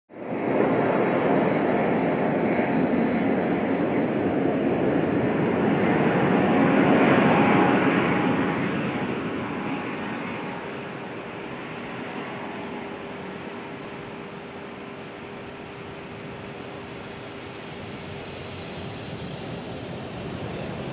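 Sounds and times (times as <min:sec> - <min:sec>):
jet engines roaring on takeoff: 0:00.2 - 0:20.9.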